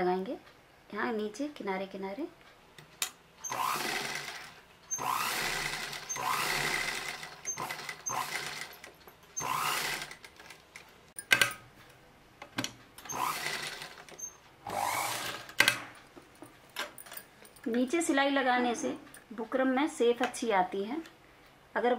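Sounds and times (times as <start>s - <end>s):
sewing machine stitching: 3.4s - 10.6s, 13.1s - 15.9s.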